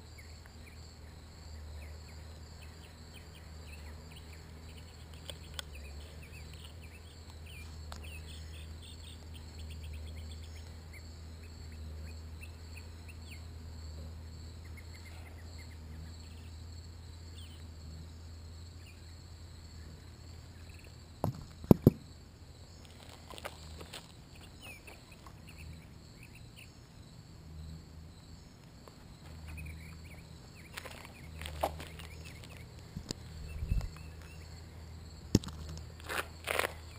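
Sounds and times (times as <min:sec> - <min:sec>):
insects trilling: 0:00.0 - 0:36.9
sharp knocks: 0:21.2 - 0:22.1
low steady rumble: 0:29.5 - 0:36.9.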